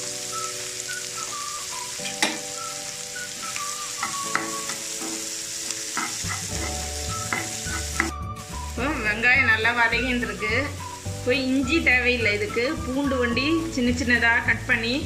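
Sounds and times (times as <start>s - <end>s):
onions sizzling in hot oil: 0.0s - 15.0s
spatula stirring in pan: 3.3s - 8.2s
spatula tapping against pan: 4.0s - 5.2s, 6.0s - 8.1s.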